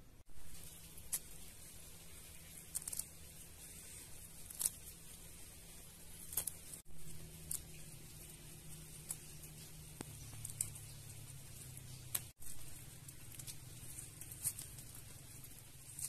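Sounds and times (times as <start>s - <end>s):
low steady hum: 0.0s - 16.0s
soft rustling: 0.3s - 16.0s
vegetable stems snapping: 2.6s - 3.2s, 4.3s - 5.0s, 6.1s - 8.1s, 8.7s - 12.3s.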